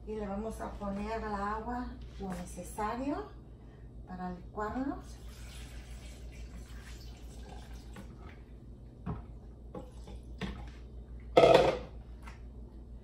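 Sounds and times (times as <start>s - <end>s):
water pouring into blender jar: 5.1s - 8.1s.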